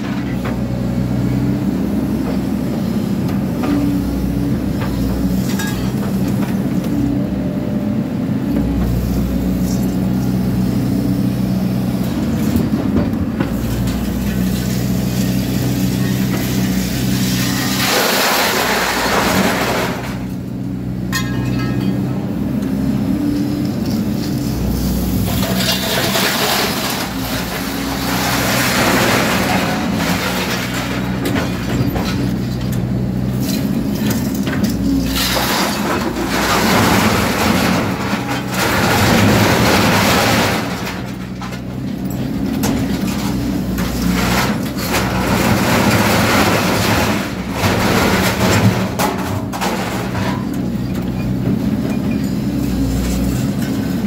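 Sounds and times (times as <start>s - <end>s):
excavator diesel engine running: 0.0s - 54.0s
shear crunching through scrap steel: 13.6s - 20.3s, 24.3s - 32.6s.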